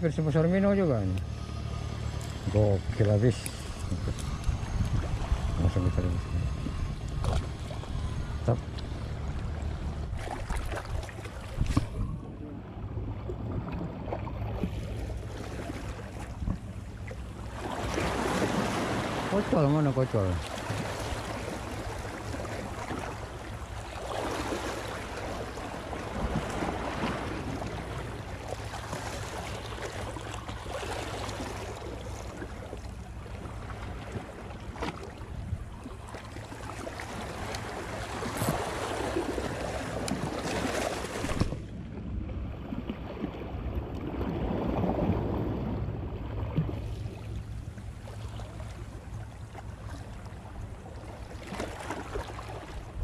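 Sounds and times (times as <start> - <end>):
steady low drone: 0.0 - 51.1
water noise: 0.0 - 53.0
wind buffeting microphone: 2.3 - 15.7.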